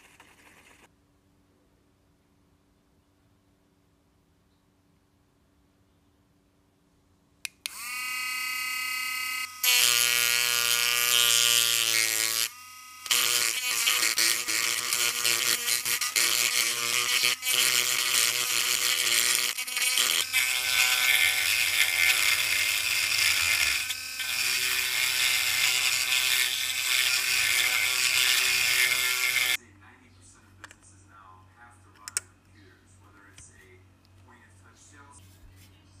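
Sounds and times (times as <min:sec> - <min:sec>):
rotary tool whining: 0:07.6 - 0:29.6.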